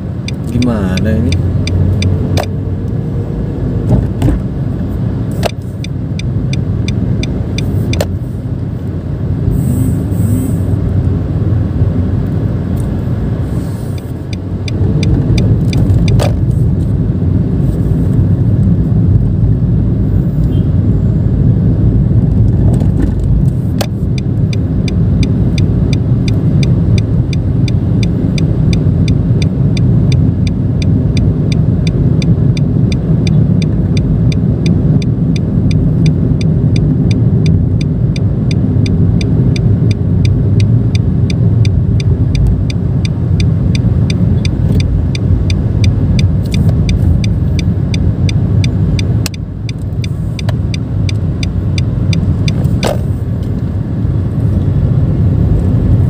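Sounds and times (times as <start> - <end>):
car engine and road noise: 0.0 - 56.0
regular ticking: 0.2 - 2.5, 23.3 - 52.9
sharp clicks: 35.7 - 53.6.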